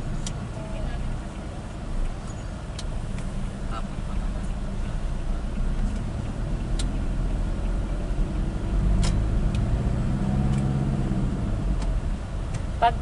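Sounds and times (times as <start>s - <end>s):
car engine and tyre rumble: 0.0s - 13.0s
sharp ticks: 1.1s - 3.6s, 4.4s - 9.7s.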